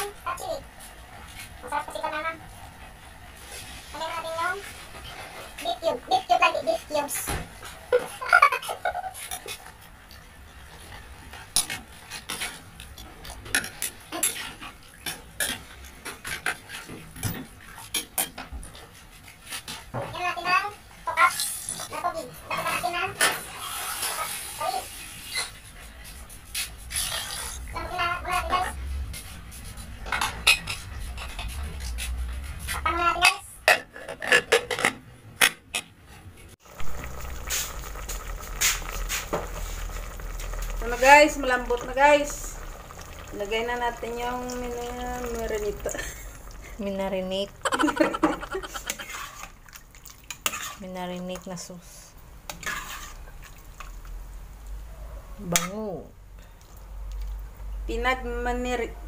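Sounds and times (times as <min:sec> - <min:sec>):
metal spoon scraping pot: 0:26.8 - 0:27.7, 0:37.1 - 0:49.6, 0:50.3 - 0:50.9, 0:52.5 - 0:53.2.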